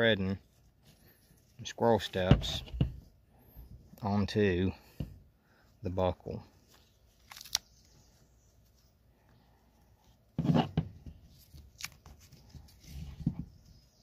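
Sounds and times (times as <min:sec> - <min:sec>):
clicks and rustles of strap: 0:06.6 - 0:08.0, 0:08.7 - 0:13.6.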